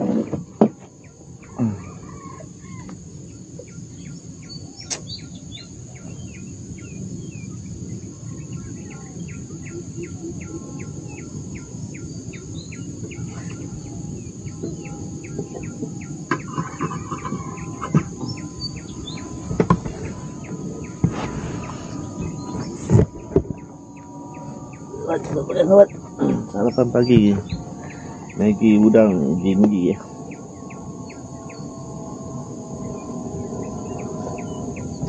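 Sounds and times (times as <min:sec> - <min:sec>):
birds calling: 0:00.0 - 0:35.0
drawn-out bird call: 0:08.5 - 0:29.2
rapid ticking bird call: 0:14.4 - 0:21.1.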